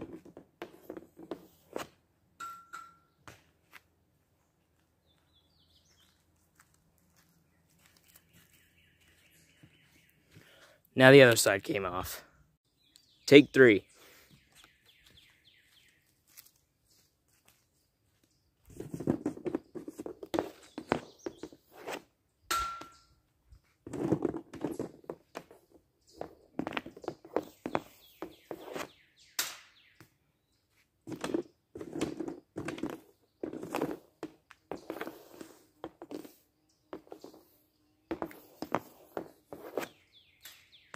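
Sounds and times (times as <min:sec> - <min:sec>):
brief ringing clink: 0:02.4 - 0:03.1, 0:22.5 - 0:23.1.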